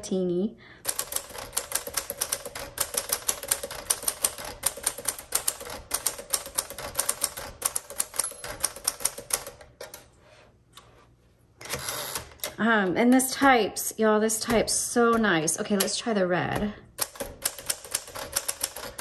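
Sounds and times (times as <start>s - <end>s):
manual typewriter typing: 0.8s - 10.1s, 14.4s - 19.0s.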